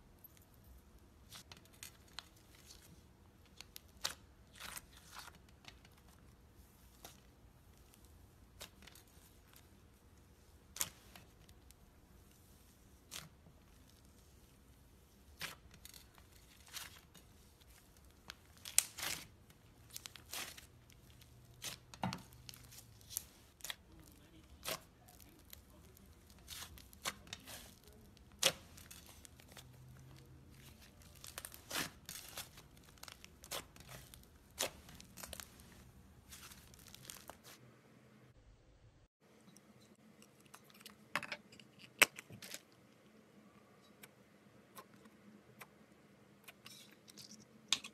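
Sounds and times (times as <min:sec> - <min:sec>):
slime crackling and popping: 0:15.3 - 0:35.5.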